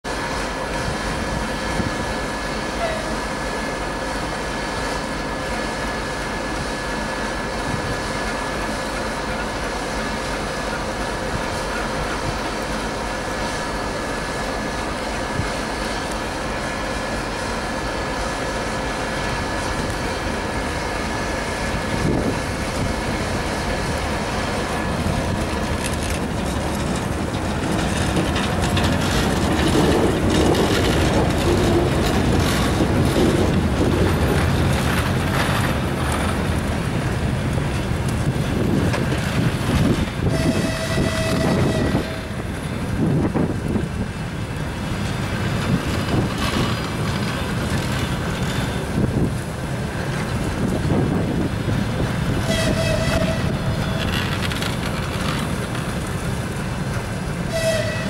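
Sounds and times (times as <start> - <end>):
train wheels rumbling on rails: 0.0 - 58.0
wheel clicks over rail joints: 25.3 - 36.9, 53.7 - 57.1.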